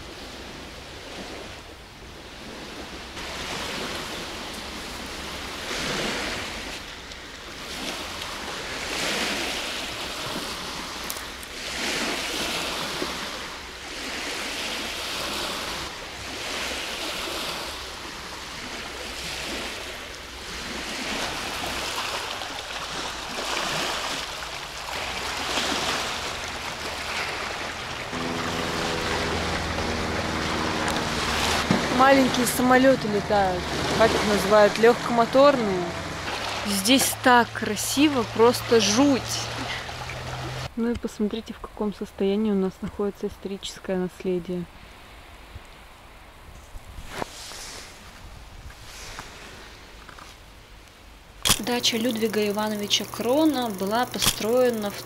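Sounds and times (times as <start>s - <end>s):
small waves washing onto shore: 0.0s - 40.7s, 46.8s - 55.0s
wind: 0.0s - 55.0s
propeller aircraft drone overhead: 24.5s - 40.7s.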